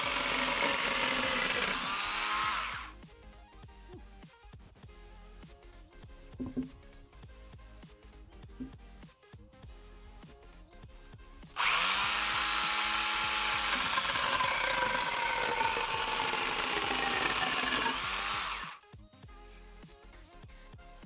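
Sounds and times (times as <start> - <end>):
angle grinder chain cutting wood: 0.0 - 3.0, 11.6 - 18.8.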